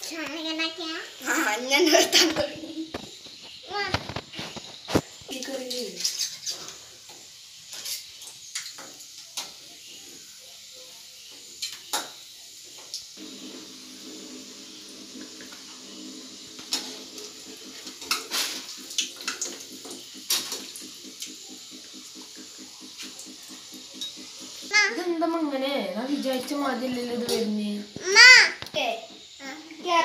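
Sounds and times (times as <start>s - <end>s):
steady hiss: 0.0s - 30.0s
metal spoon scraping a pan: 5.9s - 6.9s, 7.7s - 8.2s.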